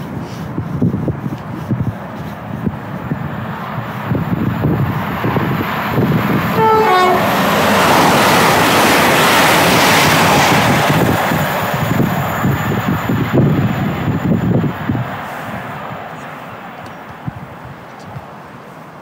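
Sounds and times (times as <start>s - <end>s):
train wheels and air rushing: 0.0s - 19.0s
two-note train horn: 6.5s - 7.4s.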